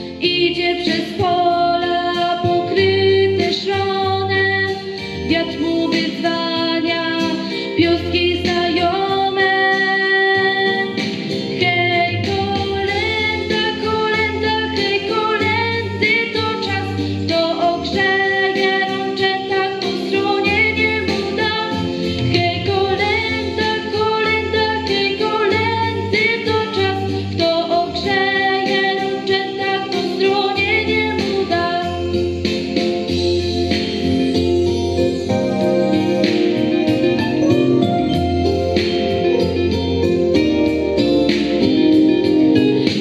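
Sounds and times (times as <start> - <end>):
young woman singing: 0.0 - 32.2
instrumental accompaniment: 0.0 - 43.0.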